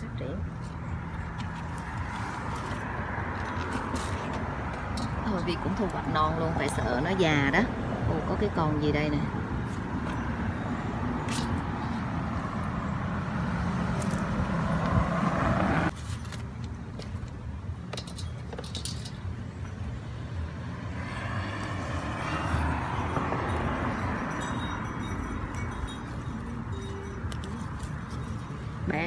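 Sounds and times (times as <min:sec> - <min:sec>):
leaves rustling and snapping: 0:13.8 - 0:15.0, 0:15.9 - 0:17.3.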